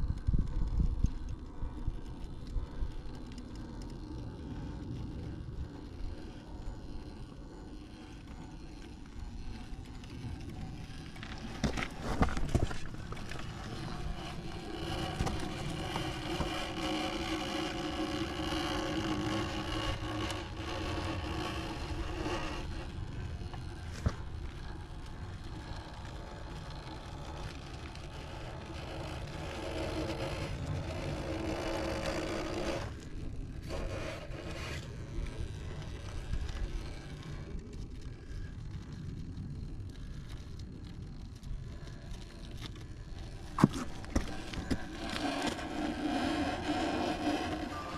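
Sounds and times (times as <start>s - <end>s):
electric motor whine: 0.0s - 40.8s, 41.7s - 47.9s
tyres scraping: 11.0s - 24.4s, 42.4s - 47.9s.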